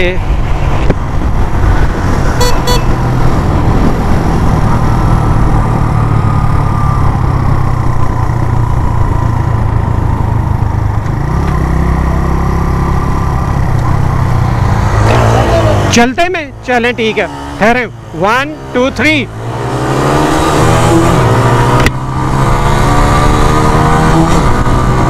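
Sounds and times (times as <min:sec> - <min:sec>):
wind rush: 0:00.0 - 0:10.4
motorcycle engine running: 0:02.3 - 0:15.8.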